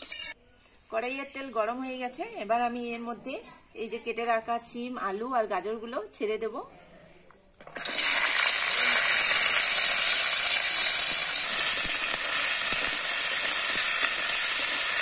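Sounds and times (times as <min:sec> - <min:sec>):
loud frying sizzle: 0:07.6 - 0:15.0
vegetables dropped into hot oil: 0:07.6 - 0:15.0.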